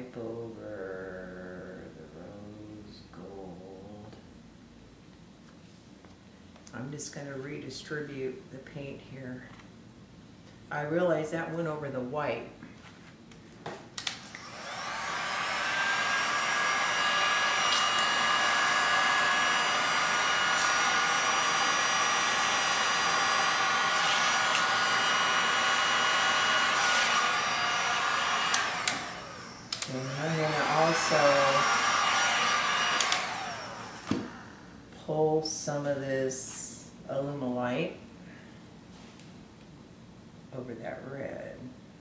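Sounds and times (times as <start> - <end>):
heat gun blowing whine: 14.2 - 34.8.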